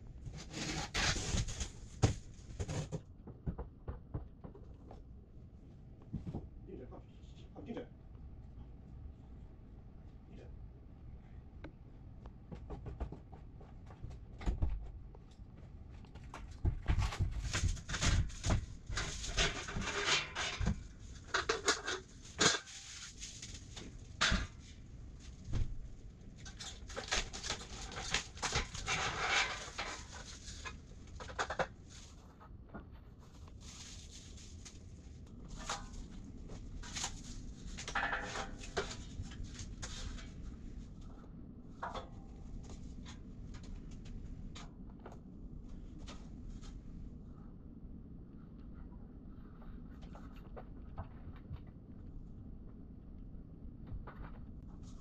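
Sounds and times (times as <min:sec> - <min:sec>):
steel shelving parts clanking: 0:17.9 - 0:23.1.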